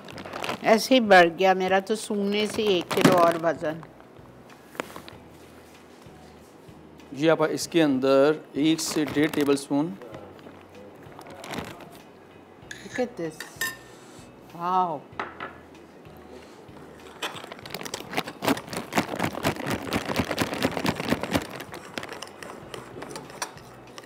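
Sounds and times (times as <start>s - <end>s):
spoon clinking in glass bowl: 12.7s - 13.9s.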